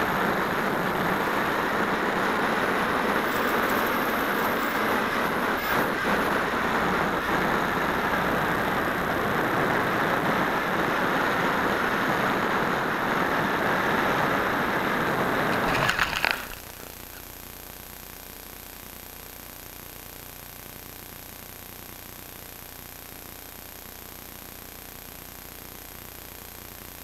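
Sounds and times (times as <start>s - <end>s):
wind rushing over microphone: 0.0s - 16.7s.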